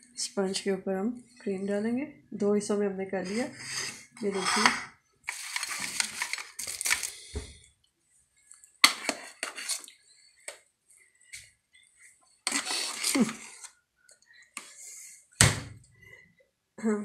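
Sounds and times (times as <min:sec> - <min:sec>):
utensil scraping a bowl: 0:03.2 - 0:04.9, 0:08.8 - 0:10.0, 0:12.4 - 0:13.7.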